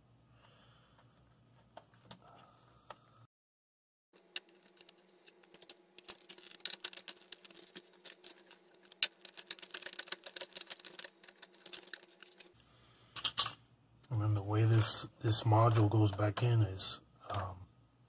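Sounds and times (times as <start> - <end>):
plastic connectors clicking and rattling: 4.2 - 12.5
faint steady hum: 4.2 - 18.0.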